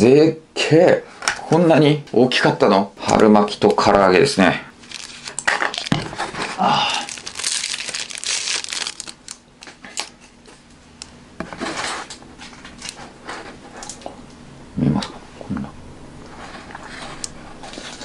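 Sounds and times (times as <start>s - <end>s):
plastic box crinkling: 4.8s - 10.1s.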